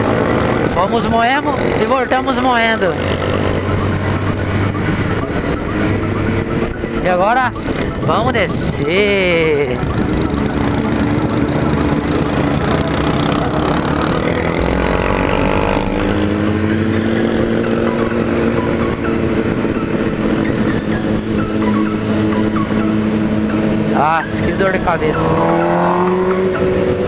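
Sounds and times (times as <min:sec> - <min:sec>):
motorcycle engine running: 0:00.0 - 0:27.0.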